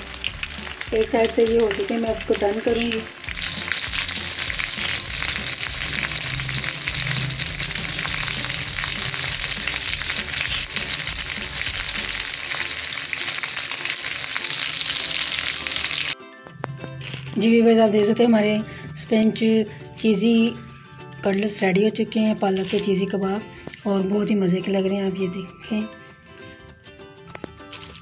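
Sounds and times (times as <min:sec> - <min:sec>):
food sizzling in oil: 0:00.0 - 0:16.2, 0:22.4 - 0:23.8.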